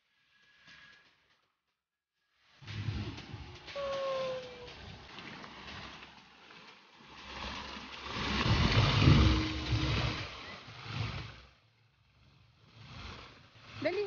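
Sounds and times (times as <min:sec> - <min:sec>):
low rumble: 0:02.6 - 0:14.0
fountain water splashing: 0:03.4 - 0:14.0.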